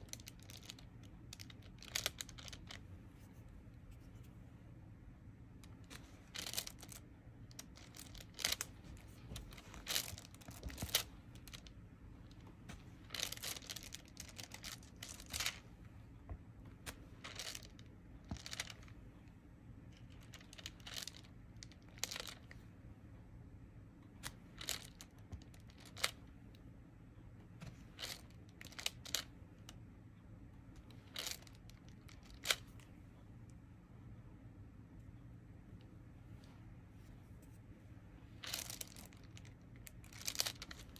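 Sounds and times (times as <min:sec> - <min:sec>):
plastic sheet crinkling: 0:05.9 - 0:11.7, 0:13.0 - 0:15.6, 0:38.4 - 0:40.9.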